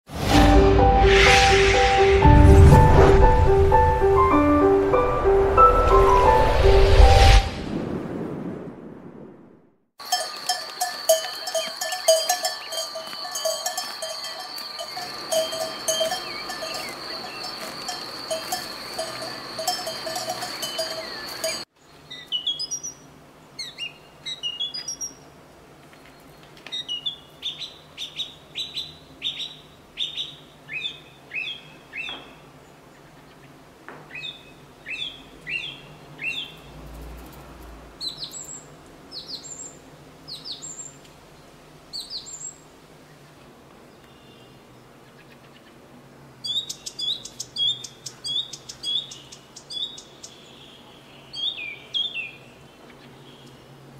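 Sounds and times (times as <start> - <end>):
bells clanking and ringing: 10.0 - 21.7
bird chirping: 10.2 - 25.2, 25.9 - 32.5, 34.1 - 36.7, 38.0 - 41.0, 46.4 - 53.6.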